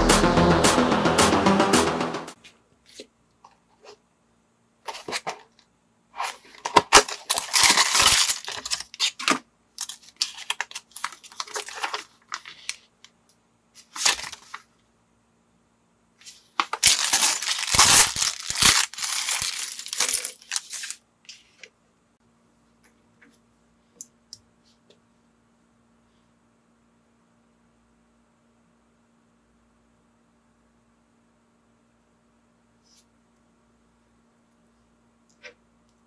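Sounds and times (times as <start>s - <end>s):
plastic bricks clattering on table: 16.6s - 21.0s.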